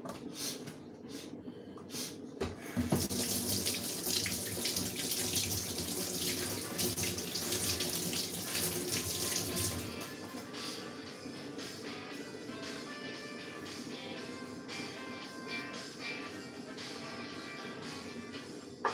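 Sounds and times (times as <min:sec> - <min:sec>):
tap running water into sink: 0:02.7 - 0:10.1.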